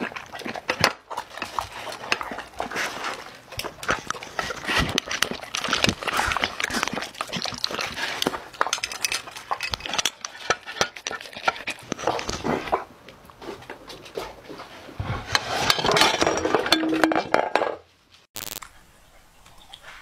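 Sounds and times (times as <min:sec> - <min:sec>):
dog crunching kibble: 0:00.0 - 0:14.6.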